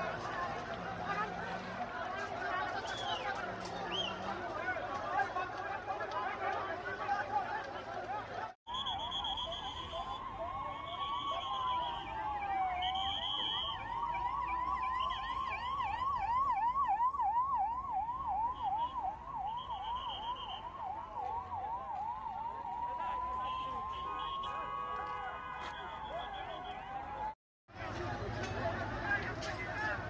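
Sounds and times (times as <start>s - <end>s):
siren yelping: 8.7s - 24.4s
siren wailing: 8.7s - 24.6s.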